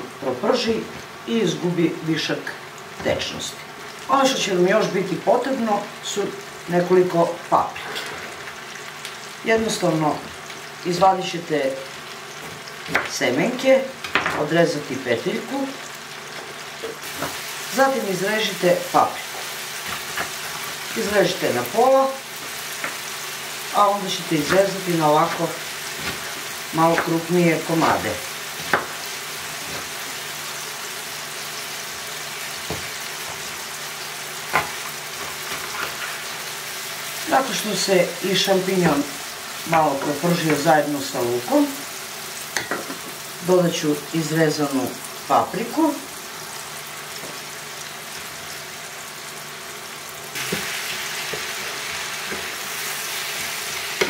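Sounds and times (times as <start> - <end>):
vegetables sizzling in a pan: 0.0 - 54.0
knife chopping on wooden board: 28.6 - 29.0.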